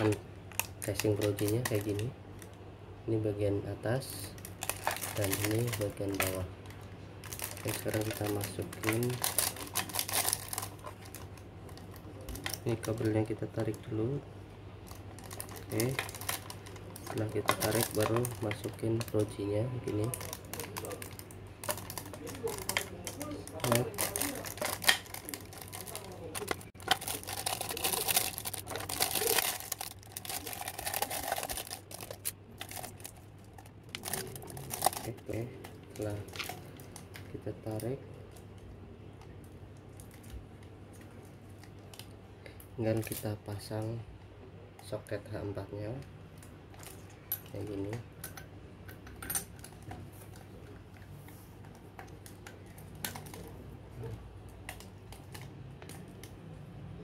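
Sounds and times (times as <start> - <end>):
plastic crackling and clicking: 4.3 - 13.9, 14.9 - 42.2, 51.6 - 56.4.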